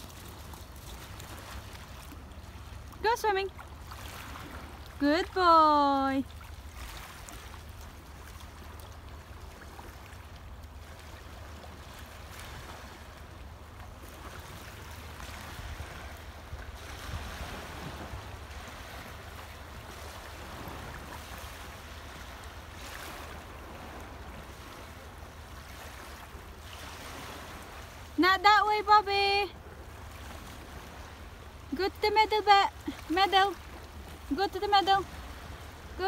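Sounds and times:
water lapping on pebble shore: 0.0s - 13.1s.

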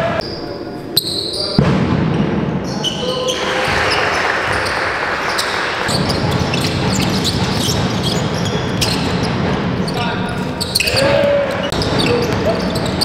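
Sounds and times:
steady din in hall: 0.0s - 13.0s
basketball bouncing: 3.6s - 9.9s.

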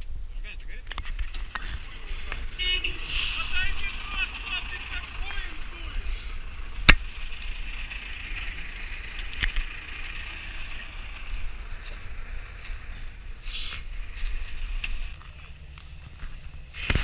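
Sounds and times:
low steady rumble: 0.0s - 17.0s
footsteps in dry leaves: 10.3s - 16.9s.

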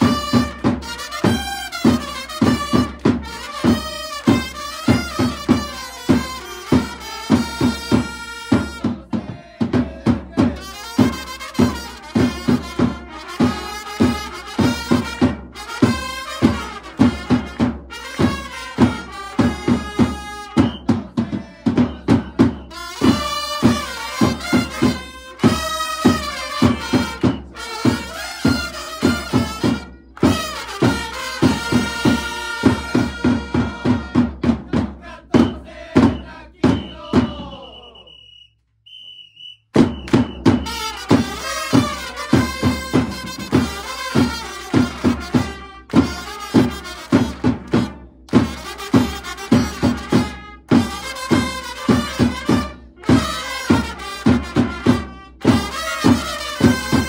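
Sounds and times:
trumpets playing in unison: 0.0s - 38.4s, 39.4s - 57.0s
hands clapping: 25.4s - 25.6s, 30.1s - 30.4s, 39.7s - 40.3s, 45.9s - 46.2s, 47.3s - 48.5s
fast bass drum beat: 39.8s - 46.2s.

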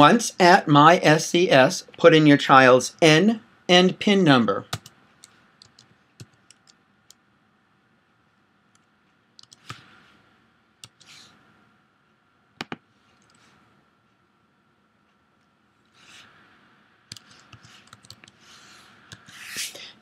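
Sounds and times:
computer keys clicking: 4.7s - 7.2s, 8.8s - 9.8s, 12.6s - 13.4s, 17.1s - 18.4s.

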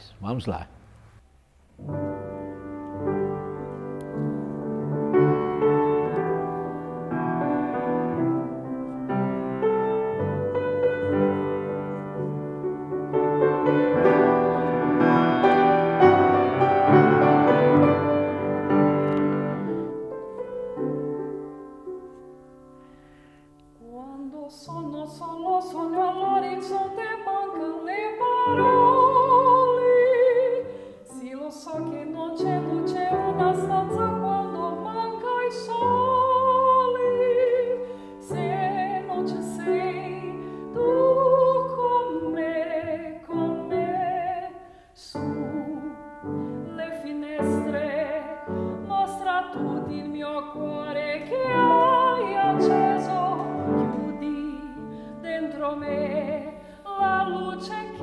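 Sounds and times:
grand piano playing chords: 1.7s - 23.9s, 24.7s - 58.0s
woman singing operatically: 23.8s - 58.0s.

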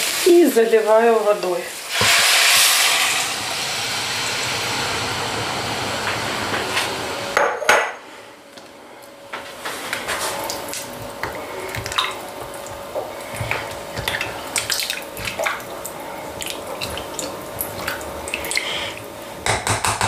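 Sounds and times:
steady hum: 0.0s - 19.9s
liquid sloshing in a pot: 9.9s - 19.1s.

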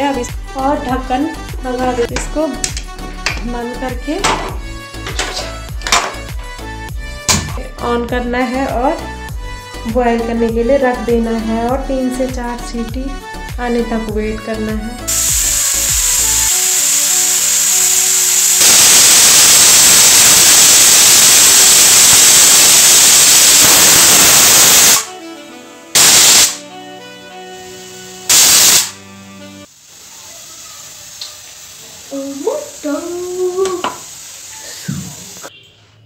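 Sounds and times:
pressure cooker steam hissing: 15.1s - 25.1s, 26.0s - 26.6s, 27.6s - 29.0s, 29.6s - 35.6s
pressure cooker whistle bursts: 15.1s - 25.1s, 26.0s - 26.6s, 28.3s - 29.0s.

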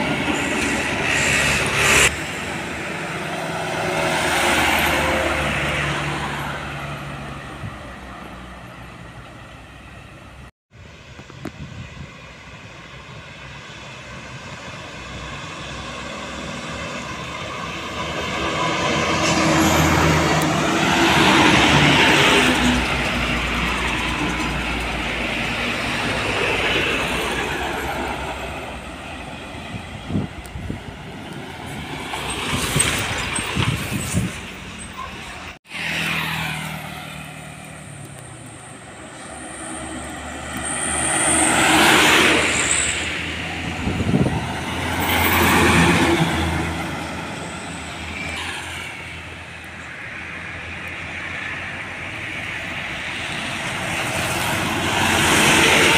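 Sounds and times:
trucks passing on highway: 0.0s - 55.9s.

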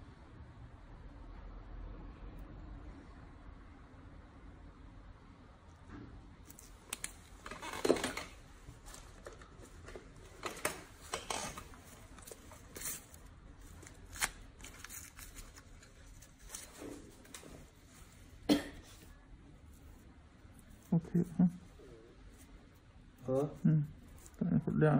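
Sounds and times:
tissue and packaging crinkling: 6.5s - 18.3s.

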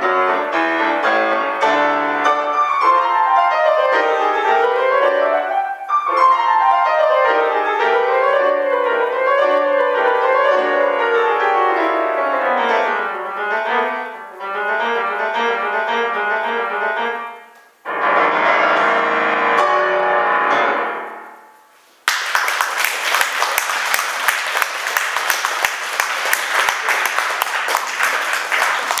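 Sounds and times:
grand piano playing: 0.0s - 21.6s
audience applause: 22.0s - 29.0s.

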